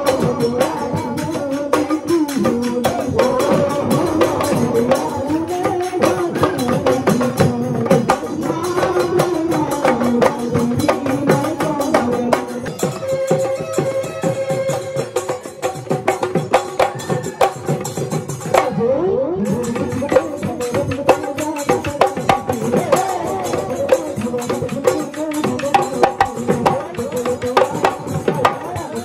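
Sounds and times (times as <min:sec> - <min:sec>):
pitched melody: 0:00.0 - 0:21.9
drum beaten rapidly: 0:00.0 - 0:29.0.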